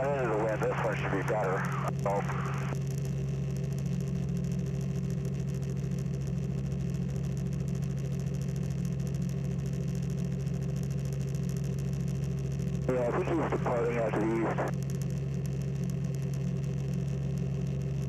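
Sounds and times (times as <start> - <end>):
light aircraft engine droning: 0.0 - 18.0.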